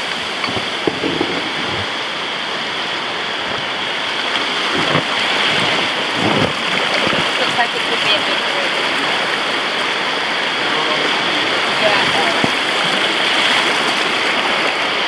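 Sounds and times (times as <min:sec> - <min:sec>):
river rapids rushing: 0:00.0 - 0:15.0
low knocks: 0:00.4 - 0:01.9.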